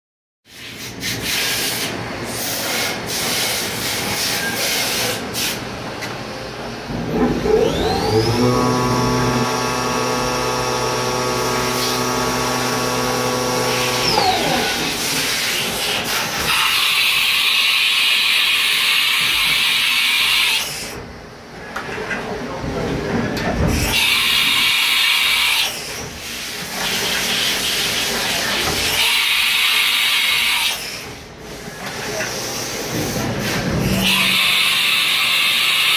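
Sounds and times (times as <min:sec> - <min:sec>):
machine spindle whining: 0:07.0 - 0:15.4, 0:33.8 - 0:35.9.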